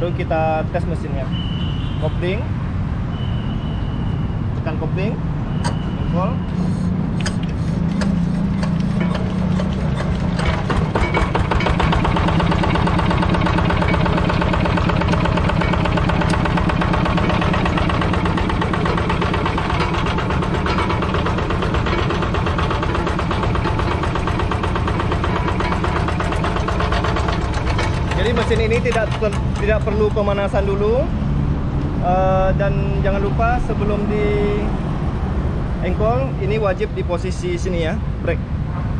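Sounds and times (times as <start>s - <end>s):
diesel engine idling: 6.6s - 31.1s.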